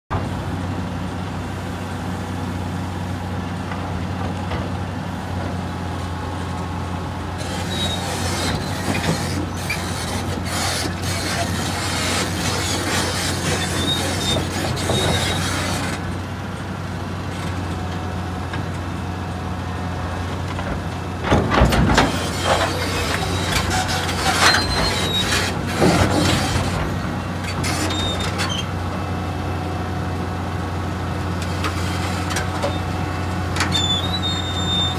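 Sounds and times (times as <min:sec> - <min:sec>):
excavator diesel engine running: 0:00.1 - 0:34.9
high squeaks: 0:07.4 - 0:15.8, 0:22.1 - 0:26.6, 0:27.6 - 0:28.7, 0:33.6 - 0:34.9
metal creaks: 0:07.4 - 0:16.0, 0:20.5 - 0:28.7, 0:33.6 - 0:34.9.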